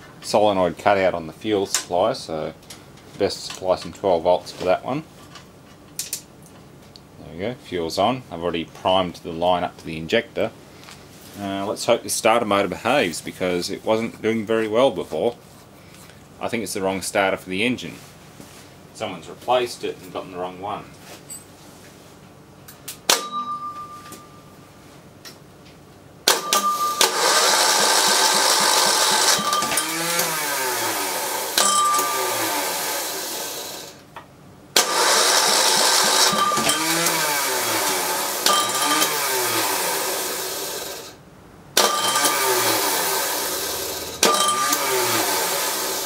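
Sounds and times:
starter motor cranking engine: 0:26.3 - 0:34.0, 0:34.8 - 0:41.2, 0:41.8 - 0:46.0.

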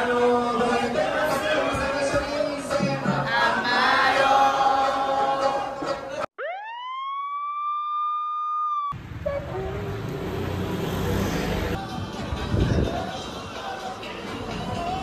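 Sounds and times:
men singing loudly: 0:00.0 - 0:06.2
street background noise: 0:00.0 - 0:06.3, 0:08.8 - 0:15.0.

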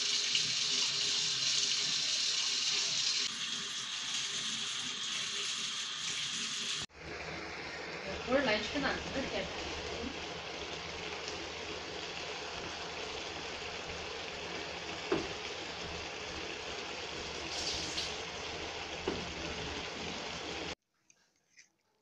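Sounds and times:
broth simmering with bubbling hiss: 0:06.6 - 0:20.8.

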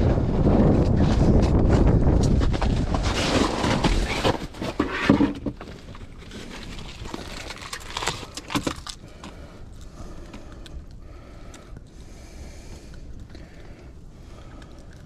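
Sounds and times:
wind buffeting microphone: 0:00.0 - 0:04.2.

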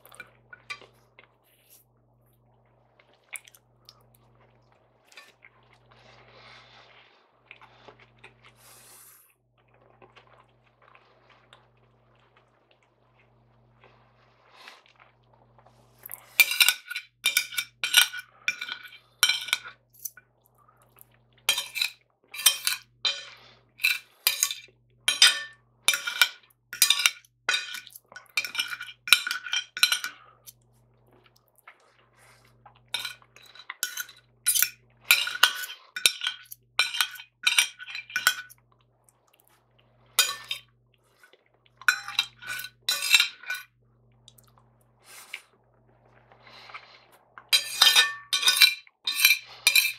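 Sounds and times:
cutlery scraping china plate: 0:16.3 - 0:19.7, 0:21.5 - 0:30.2, 0:33.0 - 0:38.5, 0:40.2 - 0:40.7, 0:41.9 - 0:43.7, 0:47.5 - 0:49.9.

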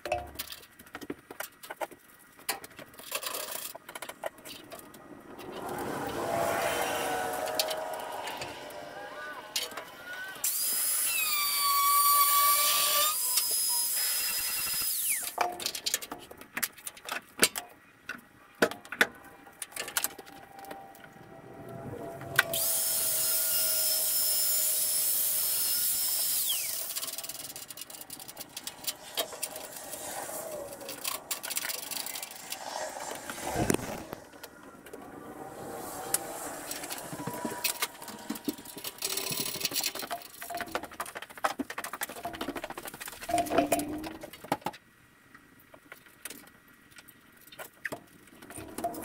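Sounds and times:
tool spinning down whine: 0:05.4 - 0:15.4, 0:20.1 - 0:40.2
power tool cutting steel: 0:05.6 - 0:15.4, 0:22.0 - 0:40.1.

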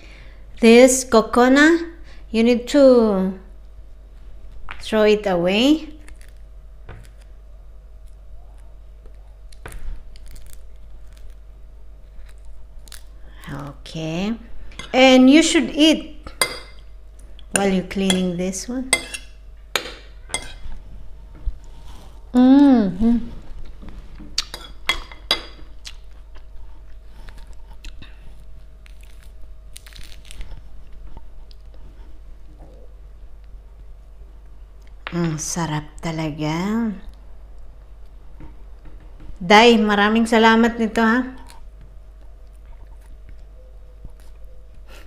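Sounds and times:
steady low hum: 0:00.0 - 0:45.0
fruit peel tearing by hand: 0:07.0 - 0:07.4, 0:08.0 - 0:13.2, 0:27.3 - 0:30.9
chewing juicy fruit: 0:25.8 - 0:31.9, 0:41.4 - 0:44.9
peeling fruit membrane: 0:27.0 - 0:31.8
tearing rustle: 0:28.8 - 0:30.7.

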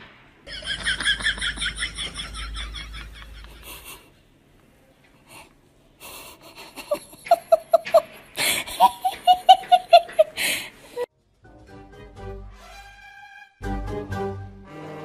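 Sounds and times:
person laughing: 0:00.5 - 0:04.1, 0:06.1 - 0:11.0
wheezy breath: 0:10.4 - 0:10.9.

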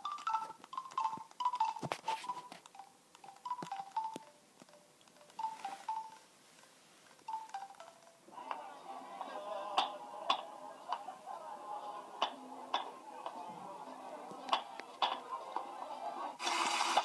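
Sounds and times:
mobile phone keypad beeps: 0:00.0 - 0:04.4, 0:05.3 - 0:06.2.

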